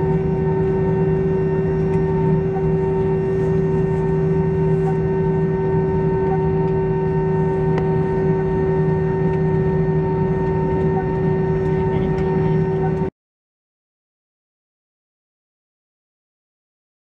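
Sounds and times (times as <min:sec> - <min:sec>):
airplane cabin engine drone: 0:00.0 - 0:13.1.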